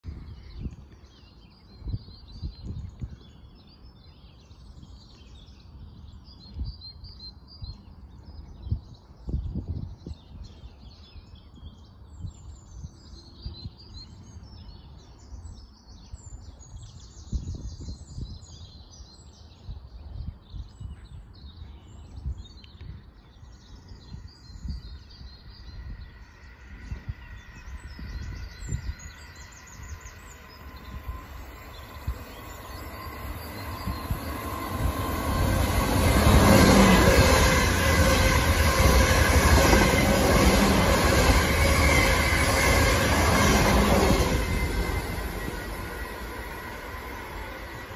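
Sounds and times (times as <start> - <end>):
birds singing: 0.1 - 47.9
low gusty rumbles: 23.5 - 47.9
electric train rushing and whining: 24.6 - 47.9.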